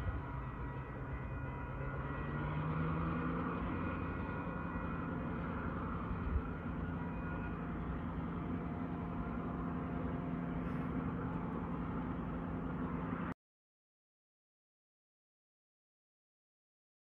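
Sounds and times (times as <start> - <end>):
diesel engine humming: 0.0 - 13.4.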